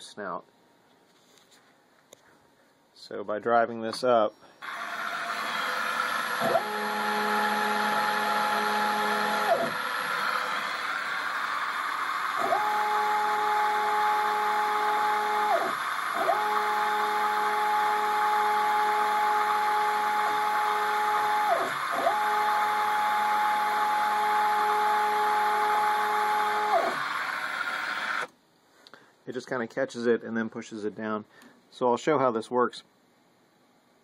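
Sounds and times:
stepper motors whining: 0:04.5 - 0:28.3
steady rushing motor noise: 0:04.6 - 0:28.3.

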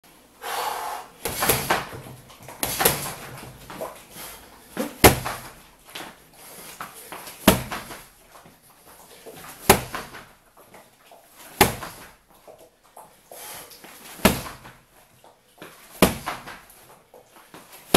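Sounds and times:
hard thuds on punching dummy: 0:01.2 - 0:03.5, 0:04.8 - 0:05.5, 0:07.4 - 0:08.0, 0:09.6 - 0:10.2, 0:11.6 - 0:12.0, 0:14.2 - 0:14.7, 0:16.0 - 0:16.6.

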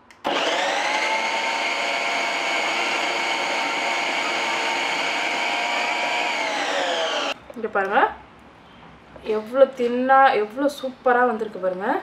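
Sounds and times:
food processor motor whining: 0:00.2 - 0:07.4.

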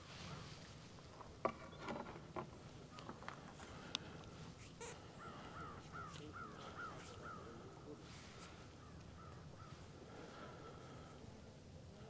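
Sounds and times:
bird calling faintly: 0:02.8 - 0:11.3.

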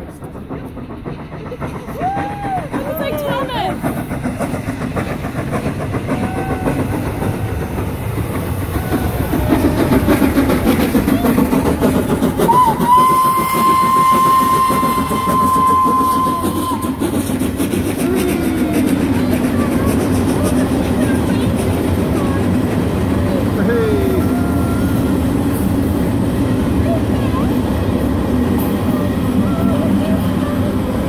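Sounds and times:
steam locomotive passing: 0:00.0 - 0:31.0
steam whistle: 0:12.4 - 0:17.0.

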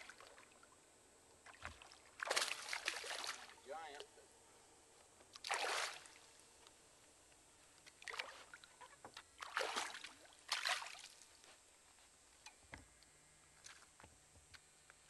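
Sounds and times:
fish splashing in water: 0:01.4 - 0:03.6, 0:05.4 - 0:06.2, 0:08.0 - 0:11.2.

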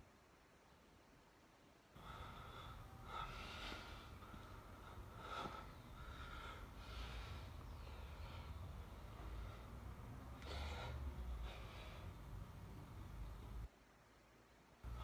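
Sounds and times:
man breathing hard through nose: 0:02.0 - 0:12.4.

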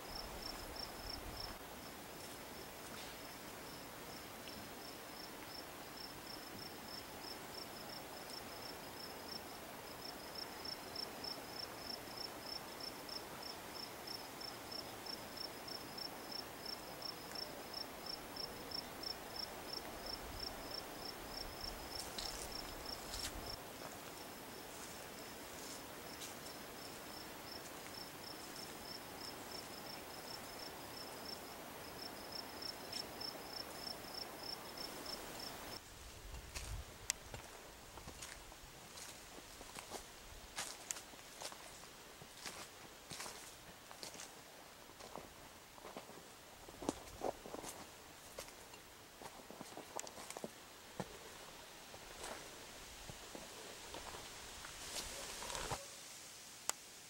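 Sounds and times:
cricket chirping: 0:00.0 - 0:35.8
faint background hiss: 0:00.0 - 0:57.0.

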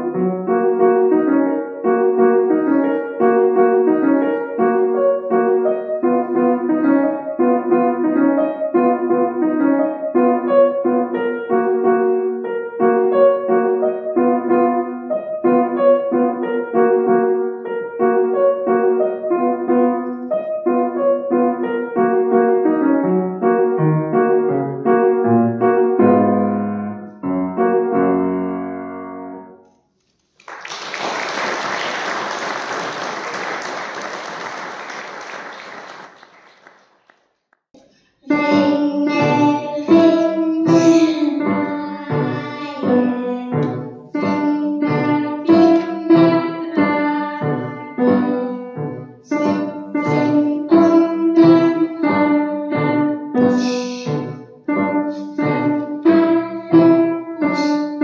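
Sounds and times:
grand piano playing: 0:00.0 - 0:29.6, 0:38.3 - 0:58.0
audience applause: 0:30.4 - 0:37.4.

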